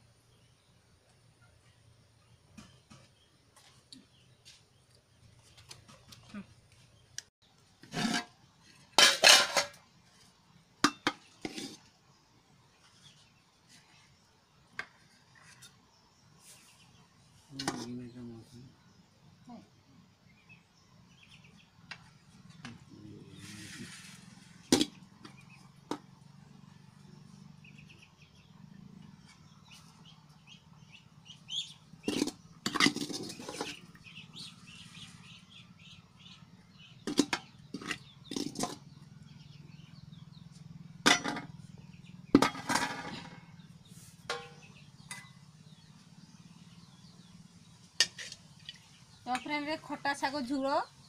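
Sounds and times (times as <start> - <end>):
birds chirping: 0.0 - 51.0
metal ladle scraping a pot: 7.8 - 8.4, 9.0 - 9.8, 10.9 - 11.9, 32.0 - 33.8, 44.2 - 45.4.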